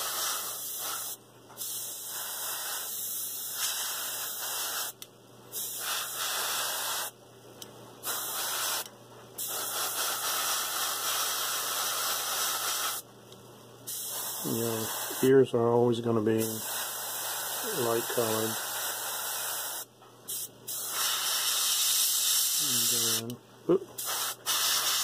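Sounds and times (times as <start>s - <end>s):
airbrush hissing: 0.0s - 7.2s, 8.0s - 13.0s, 13.9s - 15.4s, 16.4s - 23.3s, 24.0s - 25.0s.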